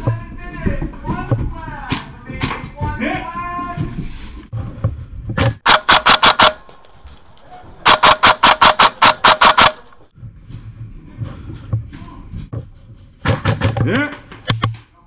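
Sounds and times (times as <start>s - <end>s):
airsoft rifle rapid shots: 5.6s - 10.1s.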